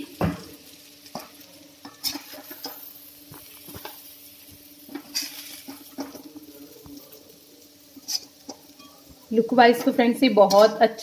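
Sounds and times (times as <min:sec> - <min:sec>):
metal spatula scraping a pan: 0:01.1 - 0:02.9, 0:04.9 - 0:06.3, 0:08.0 - 0:10.9.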